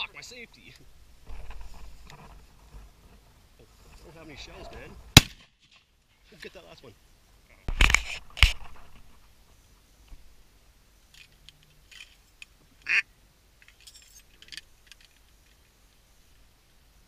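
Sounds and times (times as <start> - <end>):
shotgun shot: 5.2 - 5.6.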